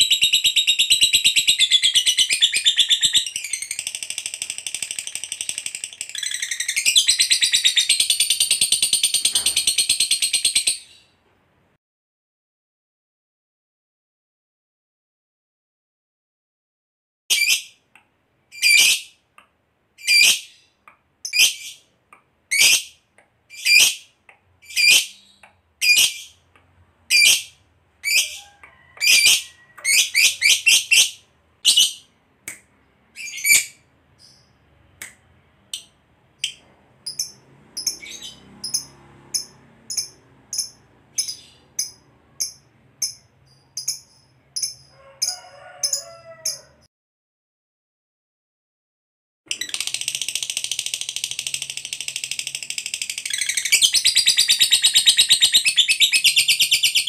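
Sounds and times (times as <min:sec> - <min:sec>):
lovebird chirping: 0:00.0 - 0:11.2, 0:18.5 - 0:19.1, 0:20.0 - 0:21.9, 0:22.5 - 0:26.4, 0:27.1 - 0:32.1, 0:33.1 - 0:34.7, 0:35.7 - 0:46.6, 0:52.8 - 0:57.0.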